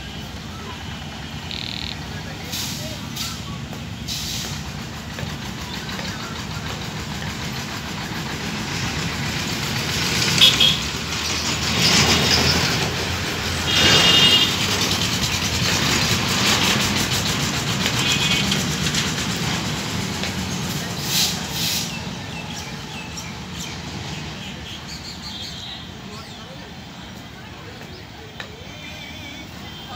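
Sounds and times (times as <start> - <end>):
locomotive engine running: 0.0 - 24.1
short high-pitched sounds: 1.4 - 2.0.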